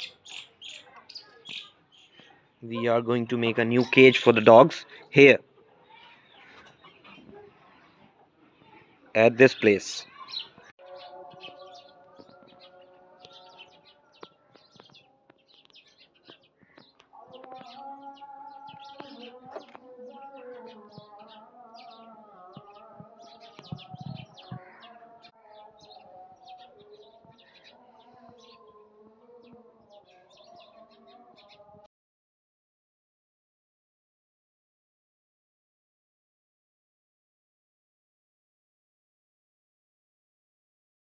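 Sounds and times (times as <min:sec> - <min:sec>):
small birds chirping: 0:00.0 - 0:31.9.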